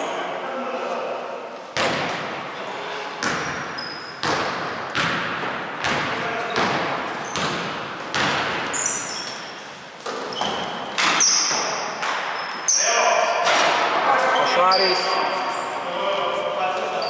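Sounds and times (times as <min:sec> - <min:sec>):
shoes squeaking on floor: 0:02.5 - 0:04.4, 0:06.4 - 0:07.6, 0:08.6 - 0:13.6, 0:14.2 - 0:15.8, 0:16.8 - 0:17.0
basketball bouncing on wooden floor: 0:03.2 - 0:09.5.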